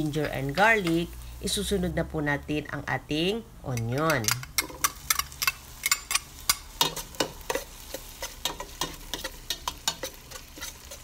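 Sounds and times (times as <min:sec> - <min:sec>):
light sizzle of oil: 0:00.0 - 0:02.7, 0:03.3 - 0:11.0
metal spoon scraping a pot: 0:03.8 - 0:11.0.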